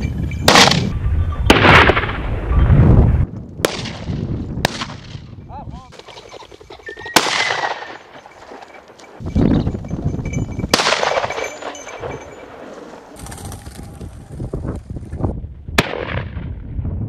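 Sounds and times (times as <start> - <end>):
shotgun blasts: 0.5 - 0.9, 1.5 - 2.3, 3.6 - 5.2, 7.2 - 8.0, 10.7 - 11.3, 15.8 - 16.5.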